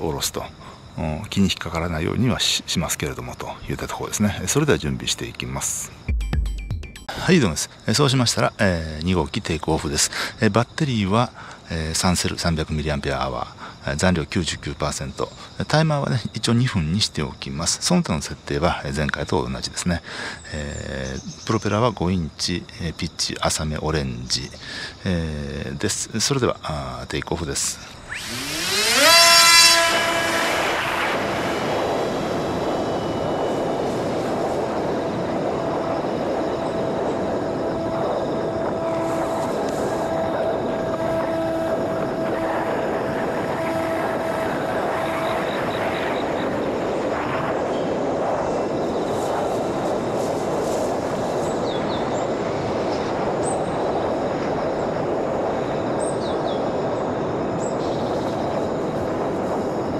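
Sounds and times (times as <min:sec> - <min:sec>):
propeller rushing noise: 0:27.5 - 0:52.8
electric motor steady note: 0:27.6 - 0:46.8.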